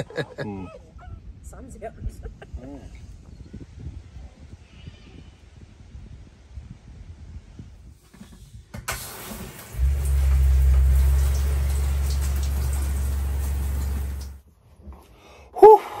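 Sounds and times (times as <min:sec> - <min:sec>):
shower water spraying on wall: 0:08.8 - 0:14.4
steady low hum: 0:09.8 - 0:14.4.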